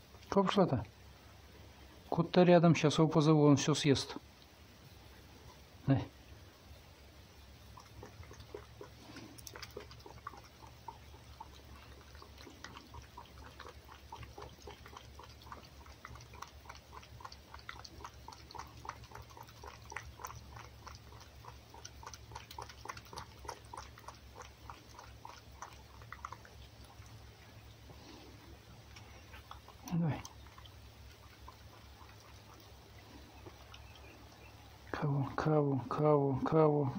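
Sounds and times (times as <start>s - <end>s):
animal lapping from a bowl: 7.4s - 36.4s.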